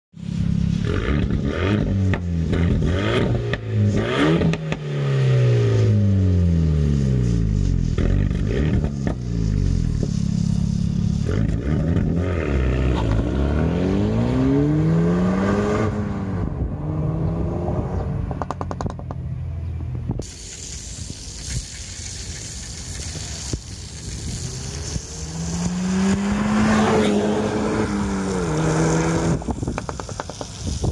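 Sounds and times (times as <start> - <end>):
car engine accelerating hard: 10.7 - 18.8, 24.3 - 30.4
rushing noise: 20.2 - 30.9.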